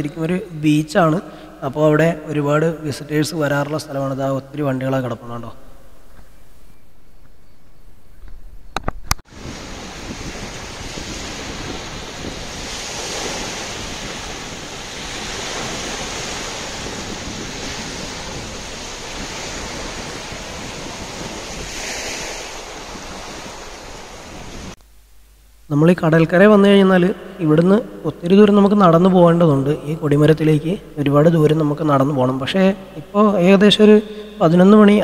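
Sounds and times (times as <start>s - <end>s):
wind buffeting microphone: 6.0s - 24.8s
sea surf rushing: 9.3s - 24.8s.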